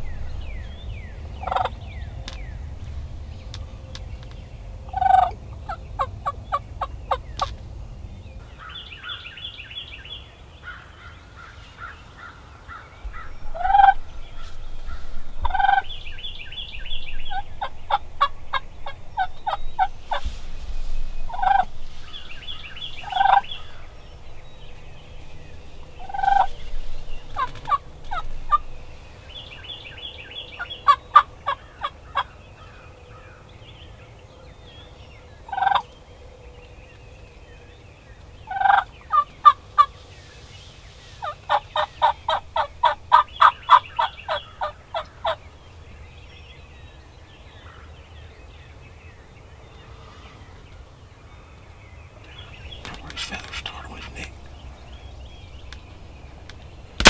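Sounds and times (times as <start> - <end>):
wild turkey calls: 1.4 - 2.4, 4.9 - 7.6, 10.6 - 16.5, 17.2 - 20.4, 21.3 - 24.0, 25.2 - 28.7, 30.5 - 33.4, 35.5 - 36.0, 38.5 - 40.0, 41.2 - 45.4, 52.2 - 55.9.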